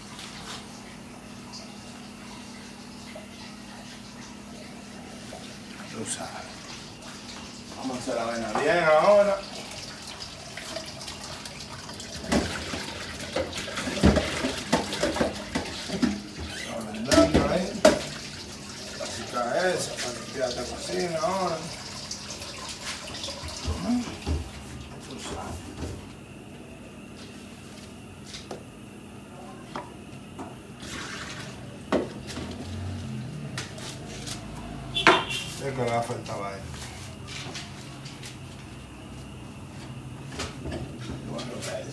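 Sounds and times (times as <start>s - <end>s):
tap running into metal sink: 17.0s - 18.2s.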